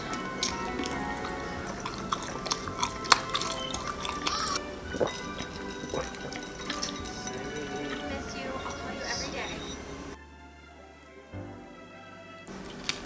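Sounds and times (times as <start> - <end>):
swallowing drink: 0.0 - 8.8
chewing close-up: 0.0 - 8.9
background music: 0.0 - 13.0.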